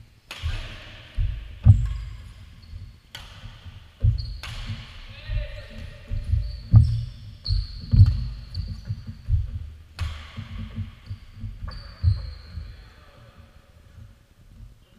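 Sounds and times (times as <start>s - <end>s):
racket hitting shuttlecock: 0.3s - 2.3s, 3.1s - 5.1s, 10.0s - 10.8s
heavy footsteps on court floor: 5.2s - 12.8s.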